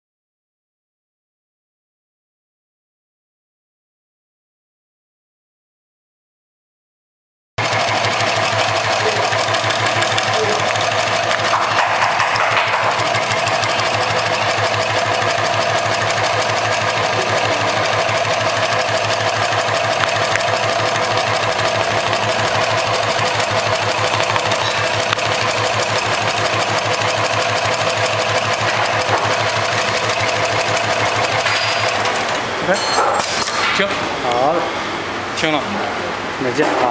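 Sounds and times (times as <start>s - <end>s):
sewing machine needle clatter: 7.6s - 32.4s.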